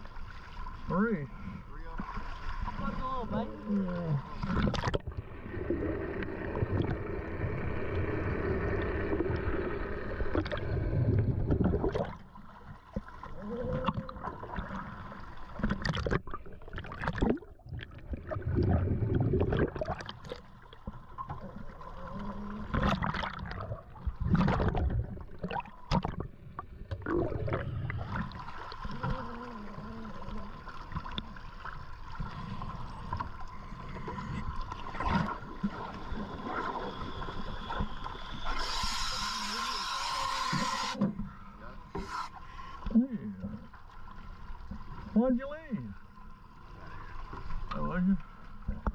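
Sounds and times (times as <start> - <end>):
water sloshing: 0.0 - 38.1
exhaled bubbles gurgling: 2.8 - 41.0
scuba regulator hissing: 38.3 - 41.0, 41.9 - 42.4.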